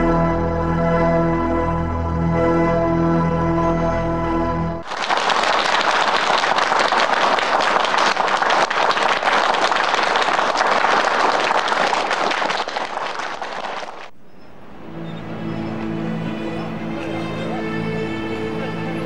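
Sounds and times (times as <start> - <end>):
audience applauding: 4.8 - 14.1.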